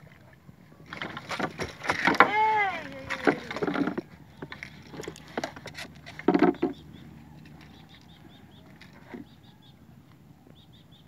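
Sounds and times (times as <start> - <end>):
small bird chirping: 6.5 - 9.8, 10.5 - 11.0.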